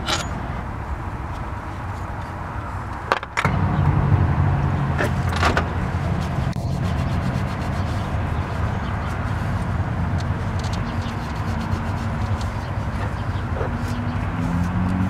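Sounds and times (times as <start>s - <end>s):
metal engine parts clicking: 0.0s - 0.6s
low rumble: 0.0s - 10.6s.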